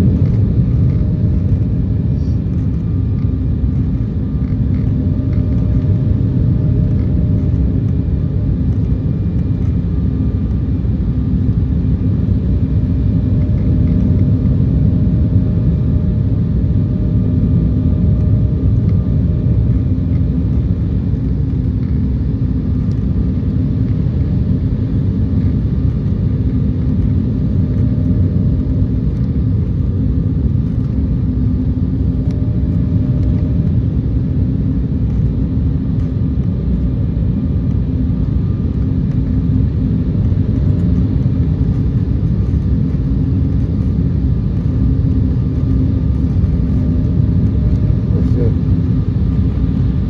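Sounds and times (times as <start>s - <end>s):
jet engines droning: 0.0s - 50.0s
steady hum: 0.0s - 50.0s.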